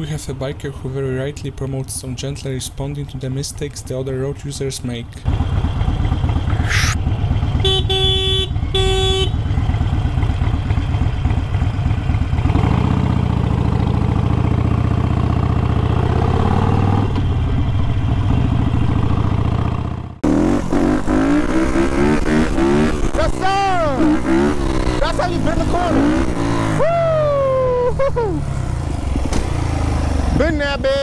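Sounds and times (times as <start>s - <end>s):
motorcycle engine running: 5.2s - 31.0s
horn toots: 6.5s - 9.6s.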